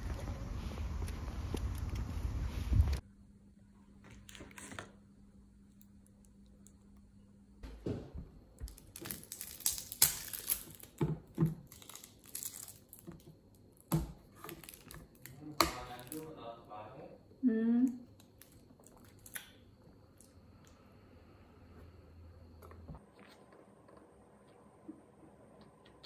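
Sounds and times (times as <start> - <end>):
faint steady hum: 0.0 - 26.0
plastic wrapper crinkling: 11.6 - 13.2.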